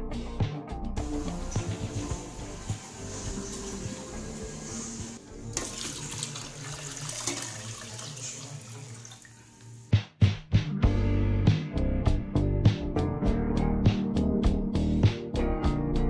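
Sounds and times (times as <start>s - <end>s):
background music with beats: 0.0s - 5.6s, 9.8s - 16.0s
water pouring into metal pot: 1.0s - 9.9s.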